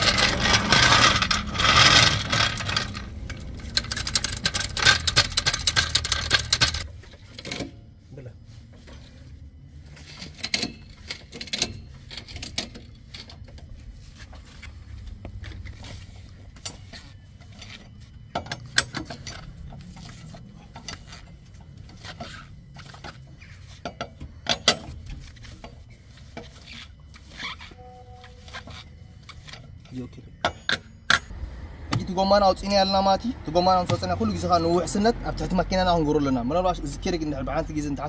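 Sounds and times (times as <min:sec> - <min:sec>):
wrench clicking on wheel nuts: 0:00.0 - 0:06.9.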